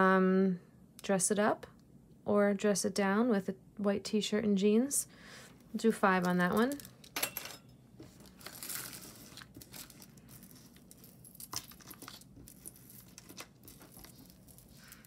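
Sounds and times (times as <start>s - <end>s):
beaded necklaces rustling and clicking: 8.0s - 15.0s.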